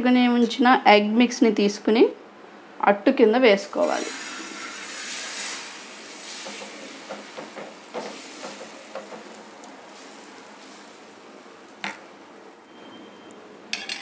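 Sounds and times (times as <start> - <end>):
batter sizzling on hot pan: 3.8 - 12.8
ladle tapping and scraping pan: 4.0 - 11.0.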